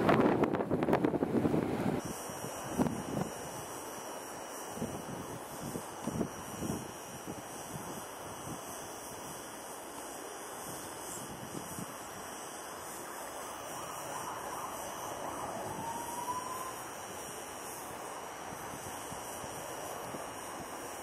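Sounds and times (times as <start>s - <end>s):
wind on microphone: 0.0s - 3.6s, 13.7s - 17.2s
distant jet engines hum: 0.0s - 21.0s
faint rising whine: 11.9s - 18.7s.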